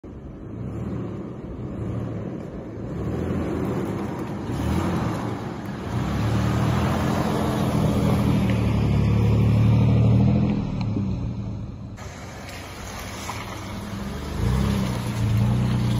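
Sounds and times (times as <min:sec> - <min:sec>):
truck engine driving on dirt: 0:00.0 - 0:15.9.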